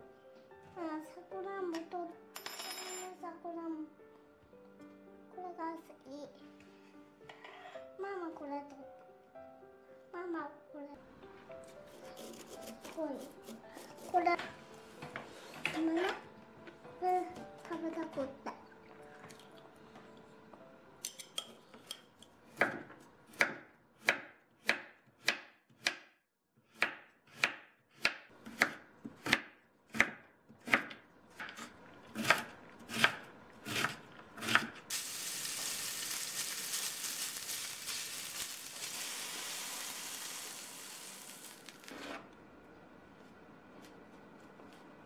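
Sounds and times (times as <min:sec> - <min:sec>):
knife chopping on cutting board: 0:22.5 - 0:26.1, 0:26.7 - 0:34.8.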